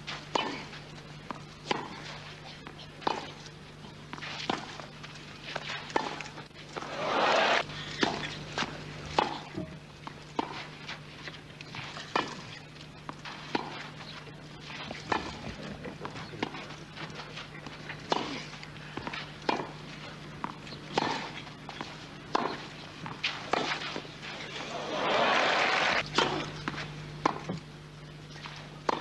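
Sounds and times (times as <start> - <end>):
steady low hum: 0.0 - 29.0
tennis ball struck by racquets: 1.6 - 2.0, 9.2 - 9.7, 13.2 - 13.9, 19.0 - 19.8, 20.4 - 21.4, 22.3 - 23.9, 24.8 - 27.6.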